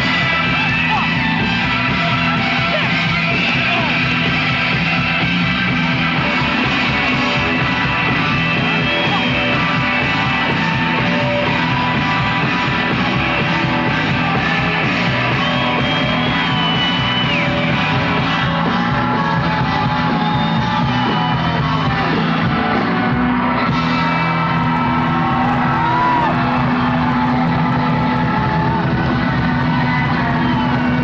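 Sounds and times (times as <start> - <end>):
live country rock band: 0.0 - 31.0.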